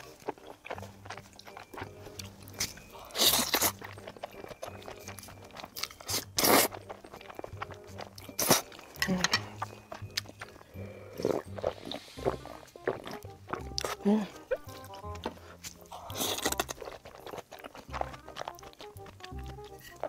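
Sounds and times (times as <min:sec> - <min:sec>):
chewing and mouth sounds: 0:00.0 - 0:20.0
loud noodle slurps: 0:03.0 - 0:03.8, 0:06.0 - 0:06.9, 0:11.1 - 0:13.2.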